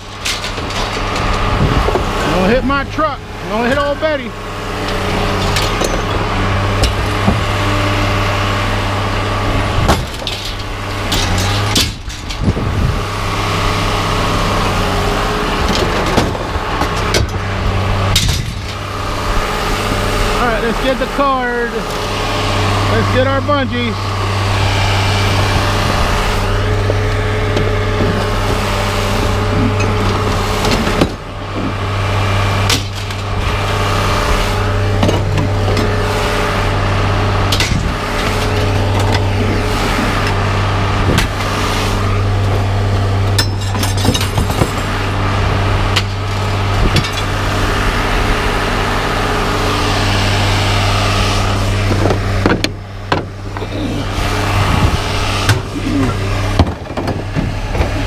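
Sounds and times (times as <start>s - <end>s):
wooden boards and metal clattering: 0.0s - 3.0s, 4.8s - 8.1s, 9.4s - 20.3s, 25.3s - 33.7s, 34.3s - 36.0s, 42.1s - 45.0s, 51.4s - 54.0s, 55.3s - 58.0s
engine idling: 0.0s - 58.0s.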